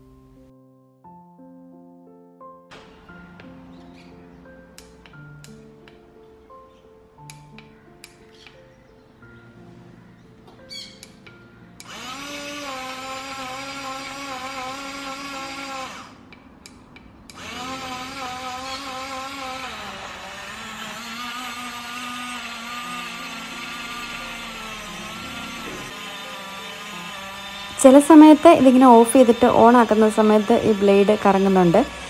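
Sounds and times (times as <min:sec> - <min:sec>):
portable blender motor whining: 0:11.8 - 0:16.4, 0:17.3 - 0:32.0.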